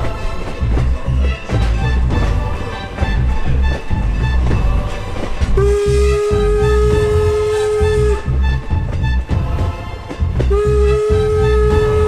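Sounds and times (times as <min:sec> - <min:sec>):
train rumbling on rails: 0:00.0 - 0:12.0
steam locomotive whistle: 0:05.6 - 0:09.3, 0:10.4 - 0:12.0.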